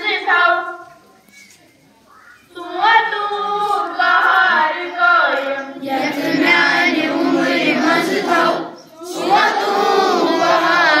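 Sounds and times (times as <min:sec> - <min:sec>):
children singing in unison: 0:02.5 - 0:11.0.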